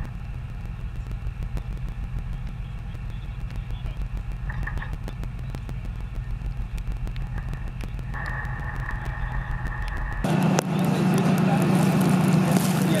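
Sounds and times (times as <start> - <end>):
heavy vehicle engine rumbling: 0.0 - 13.0
steady high whine: 0.0 - 13.0.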